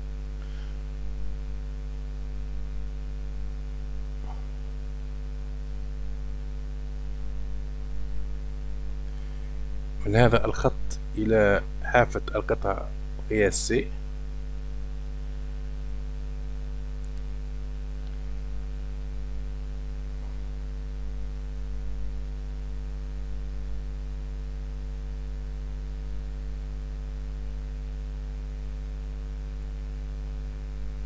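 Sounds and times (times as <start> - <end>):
electrical mains hum: 0.0 - 31.0
faint clicks: 17.0 - 17.3.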